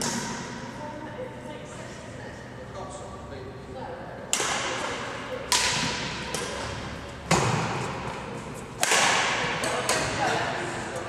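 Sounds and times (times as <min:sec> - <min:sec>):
rackets hitting shuttlecock: 0:04.3 - 0:10.4.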